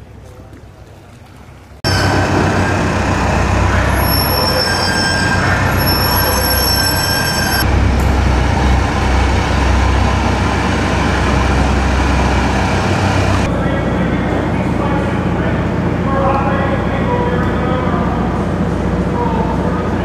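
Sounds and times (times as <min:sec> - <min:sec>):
diesel engine running loud: 0:01.8 - 0:20.0
thin high whine: 0:01.9 - 0:13.5.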